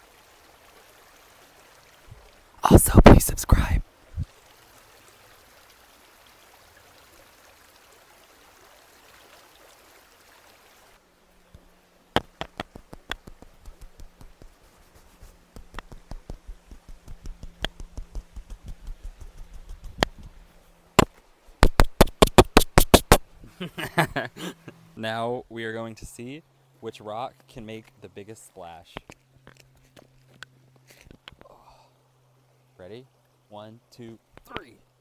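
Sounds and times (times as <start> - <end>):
hiss of flowing water: 0.0 - 21.6, 22.3 - 24.8, 30.9 - 33.4
sharp clicks and knocks: 12.2 - 14.6, 15.5 - 20.4, 21.0 - 23.2.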